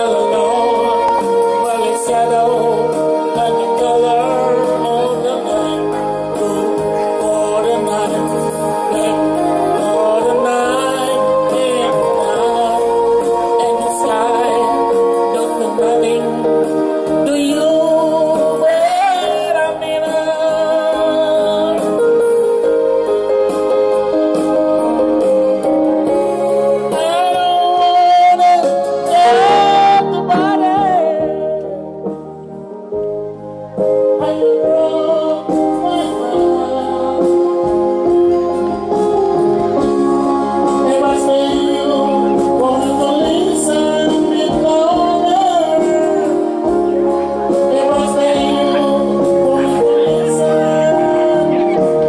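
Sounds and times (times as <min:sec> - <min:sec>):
man singing into microphone: 0:00.0 - 0:33.2, 0:33.8 - 0:52.0
electronic keyboard organ chords: 0:00.0 - 0:52.0
instrumental backing music: 0:00.0 - 0:52.0.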